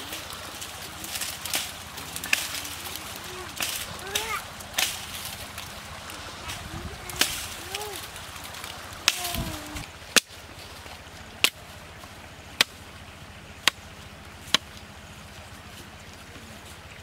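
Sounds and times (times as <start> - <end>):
knife chopping bamboo: 10.1 - 10.4, 12.6 - 12.8, 14.5 - 14.8.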